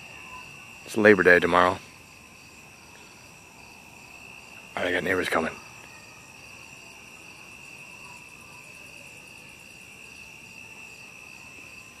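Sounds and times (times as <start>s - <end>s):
crickets trilling: 0.0s - 12.0s
fast pulsing insect call: 0.0s - 12.0s.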